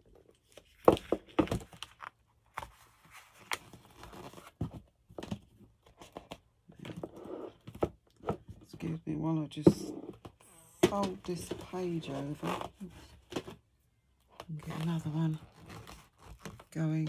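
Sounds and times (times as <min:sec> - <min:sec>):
paper rustling and crinkling: 0:00.2 - 0:07.0, 0:14.6 - 0:17.0.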